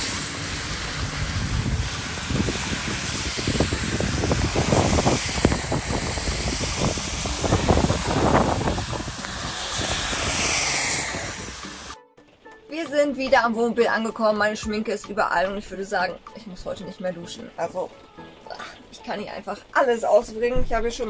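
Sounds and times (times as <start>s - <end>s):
wind and rain on microphone: 0.0s - 11.9s.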